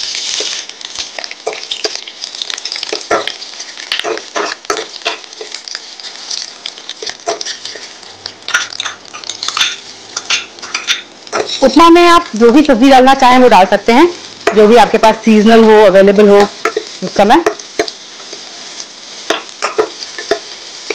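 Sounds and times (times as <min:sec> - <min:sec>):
metal spoon scraping a pan: 0:00.0 - 0:11.9, 0:16.6 - 0:20.9
hot oil crackling and popping: 0:00.0 - 0:20.9.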